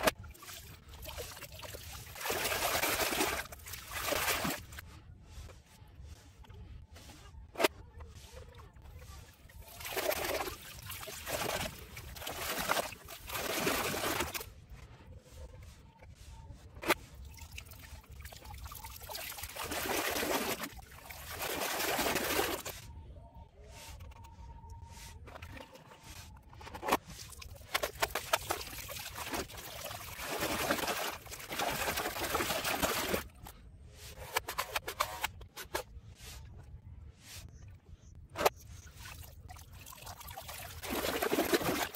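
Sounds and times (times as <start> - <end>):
muddy water splashing: 0.0 - 4.8, 9.0 - 14.5, 16.8 - 22.8, 25.3 - 33.5, 38.4 - 41.9.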